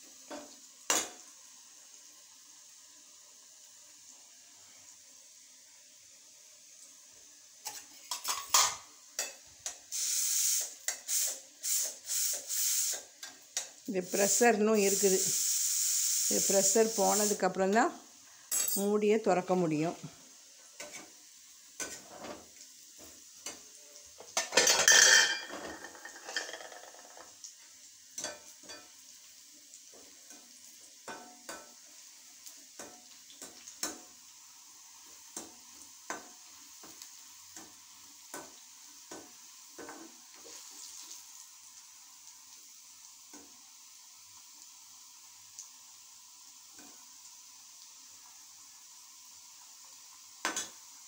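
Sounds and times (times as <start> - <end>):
metal utensils clinking on pots: 7.6 - 9.8, 18.5 - 19.0, 24.2 - 27.3, 28.2 - 28.9
loud hiss: 9.9 - 13.1, 14.0 - 17.4.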